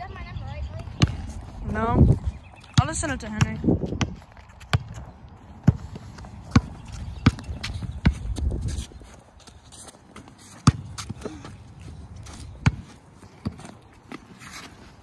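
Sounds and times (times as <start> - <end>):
basketball bouncing on concrete: 0.8 - 1.5, 2.7 - 8.7, 10.6 - 11.5, 12.6 - 13.8.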